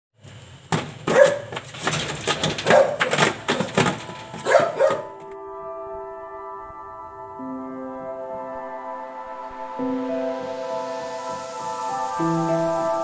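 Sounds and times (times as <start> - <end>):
soft ambient music: 2.5 - 13.0
dog crying: 4.4 - 5.2.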